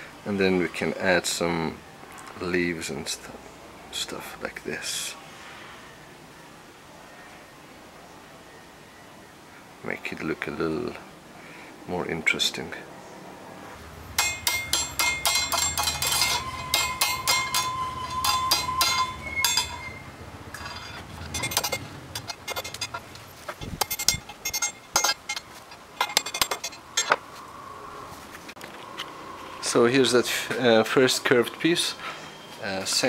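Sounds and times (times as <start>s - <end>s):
hammer blows on metal: 14.2s - 20.1s.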